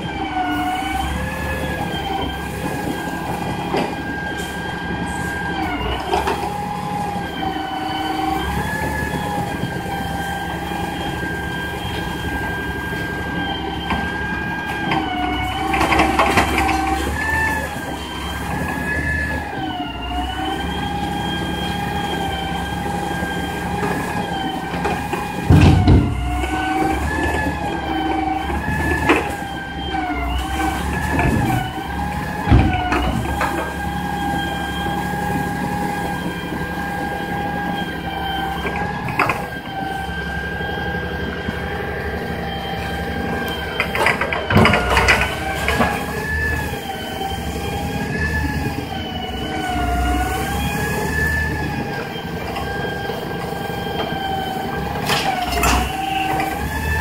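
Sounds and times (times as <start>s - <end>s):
diesel engine running: 0.0s - 57.0s
hydraulic whine: 0.0s - 57.0s
debris crashing into truck: 43.8s - 46.6s.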